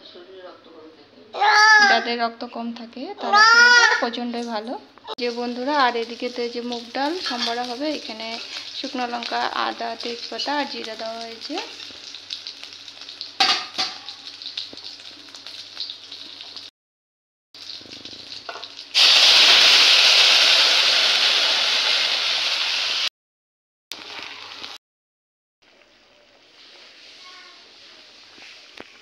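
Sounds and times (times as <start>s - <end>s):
spices sizzling in hot oil: 4.3s - 16.7s, 17.6s - 23.1s, 23.9s - 24.8s, 25.7s - 29.0s
loud sizzle of poured dal: 5.2s - 16.7s, 17.6s - 23.1s, 23.9s - 24.8s, 25.7s - 29.0s.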